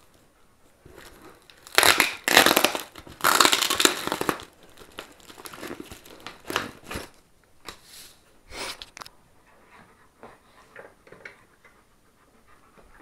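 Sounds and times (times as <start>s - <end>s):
plastic crinkling: 0.8s - 7.2s
adhesive pouch ripping off cardboard: 1.6s - 7.1s.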